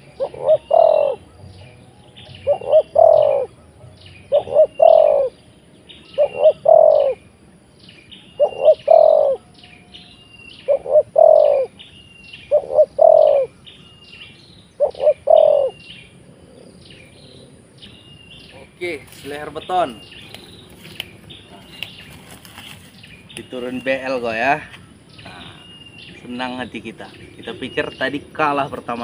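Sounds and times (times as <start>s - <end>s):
dove cooing: 0.0s - 7.3s, 8.3s - 10.0s, 10.6s - 11.8s, 12.5s - 13.6s, 14.8s - 17.7s.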